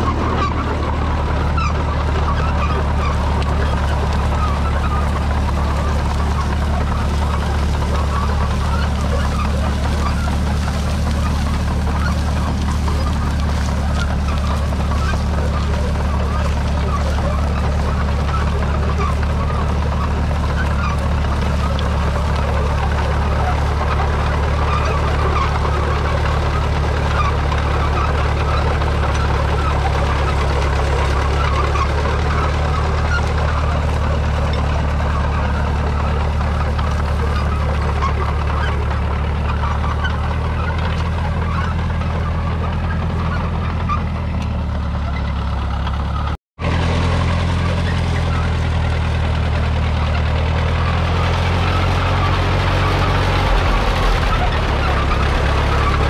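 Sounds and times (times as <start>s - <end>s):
crawler tractor engine under load: 0.0s - 56.0s
steady rushing noise: 52.5s - 56.0s.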